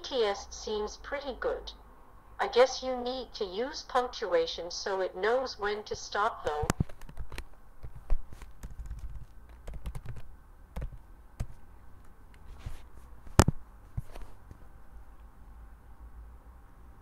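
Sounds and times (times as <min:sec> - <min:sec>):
keyboard and mouse clicking: 0:06.7 - 0:11.6.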